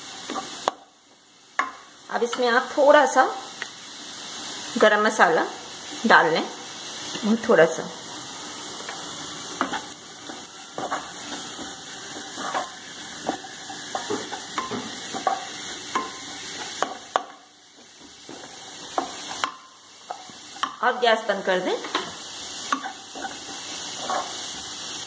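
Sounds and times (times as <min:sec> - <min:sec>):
low sizzle of frying: 0:00.0 - 0:25.0
spatula scraping a pan: 0:08.8 - 0:20.8, 0:21.9 - 0:24.7.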